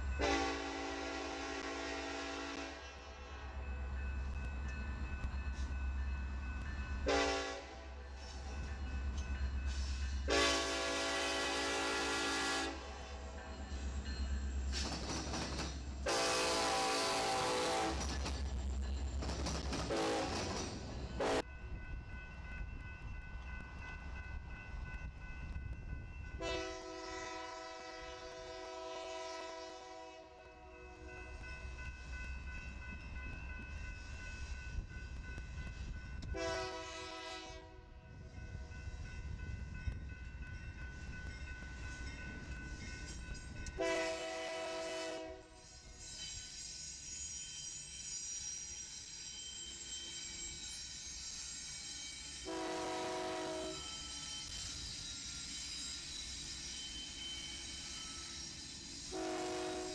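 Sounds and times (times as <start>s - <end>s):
low rumble of train: 0.0s - 59.9s
locomotive air horn: 0.2s - 2.8s, 7.1s - 7.8s, 10.3s - 13.0s, 16.0s - 18.0s, 19.9s - 20.5s, 21.2s - 21.4s, 26.4s - 30.4s, 36.3s - 37.9s, 43.8s - 45.6s, 52.4s - 53.9s, 59.1s - 59.9s
crossing bell ringing: 2.8s - 14.8s, 17.4s - 27.0s, 30.3s - 37.3s, 38.0s - 44.5s, 45.6s - 59.9s.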